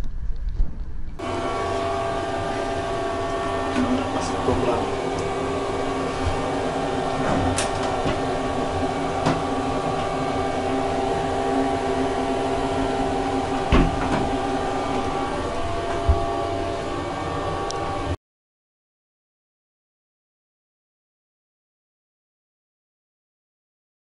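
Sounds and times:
vehicle running hum: 0:01.2 - 0:18.2.

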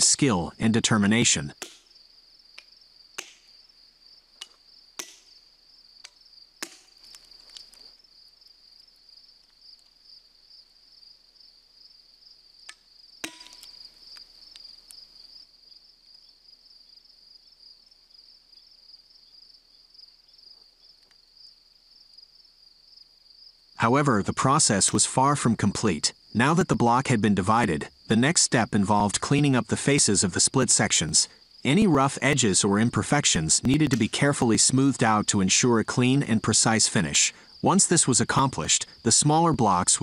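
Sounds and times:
insects trilling: 0:00.0 - 0:24.9, 0:25.5 - 0:40.0
hammer tapping steel wedges: 0:13.2 - 0:13.8.

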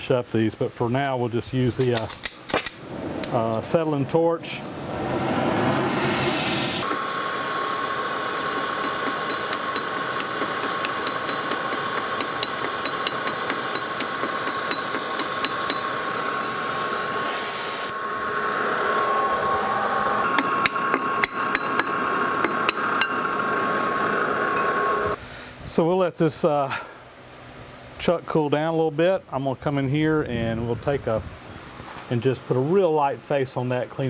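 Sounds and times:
gas torch hissing: 0:04.6 - 0:25.2.

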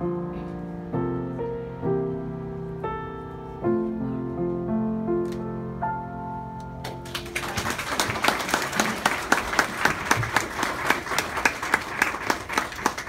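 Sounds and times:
piano notes: 0:00.0 - 0:08.0
audience clapping: 0:06.8 - 0:13.0.

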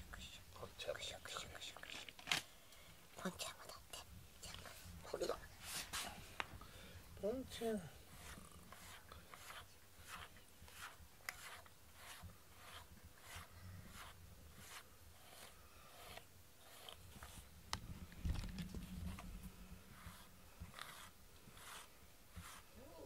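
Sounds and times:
brush scratching through fur: 0:04.6 - 0:06.2, 0:07.5 - 0:17.5, 0:18.7 - 0:23.0.

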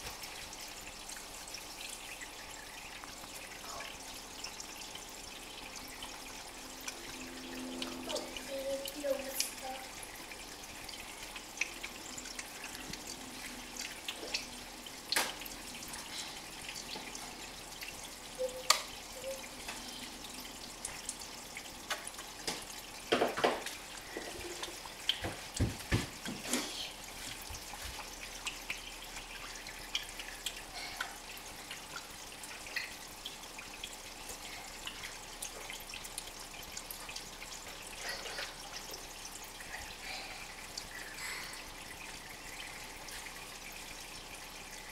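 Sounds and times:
aquarium water trickling: 0:00.0 - 0:44.9
small water splashes and pops: 0:13.7 - 0:15.6, 0:20.8 - 0:26.8.

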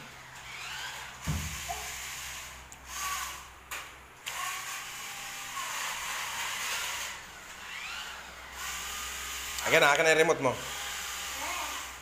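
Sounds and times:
toy car motors whirring: 0:00.3 - 0:03.5, 0:04.2 - 0:09.9, 0:10.5 - 0:12.0.

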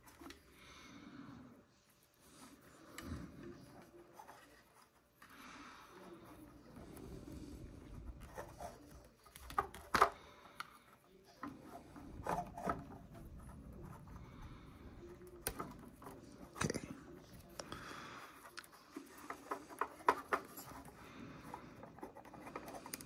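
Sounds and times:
plastic parts rubbing and scraping: 0:06.1 - 0:23.0.

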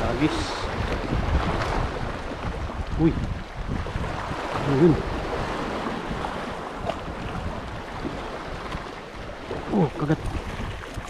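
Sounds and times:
sea surf washing: 0:00.0 - 0:11.0
wind on microphone: 0:00.0 - 0:11.0.

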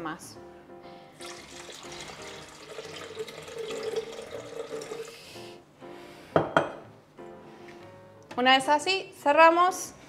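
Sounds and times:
water pouring into a plastic jug: 0:01.2 - 0:05.2.

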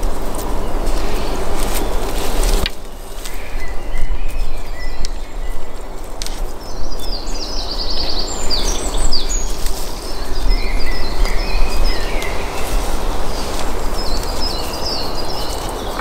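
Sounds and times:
songbirds chirping: 0:00.0 - 0:16.0.

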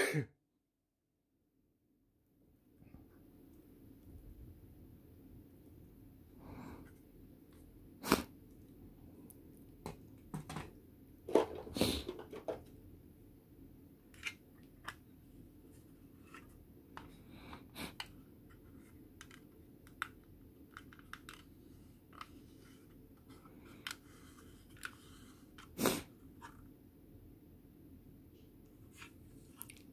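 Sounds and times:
plastic parts clicking and tapping: 0:19.0 - 0:22.4.

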